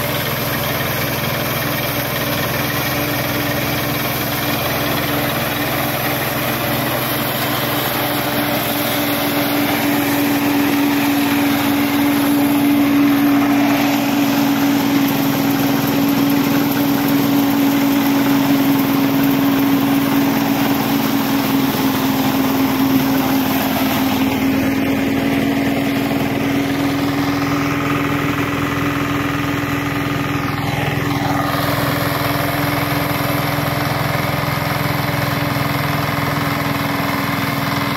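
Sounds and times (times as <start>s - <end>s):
harvester engine drone: 0.0s - 37.9s.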